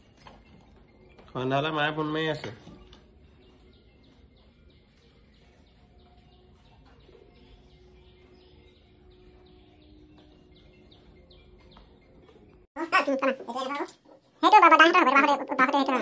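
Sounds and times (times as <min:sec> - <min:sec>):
faint bird chirping: 0:00.0 - 0:16.0.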